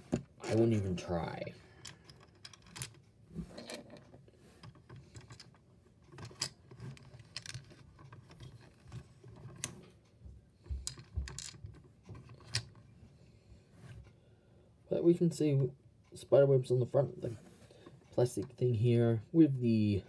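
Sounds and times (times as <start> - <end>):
plastic toy pieces clicking: 5.0 - 8.1.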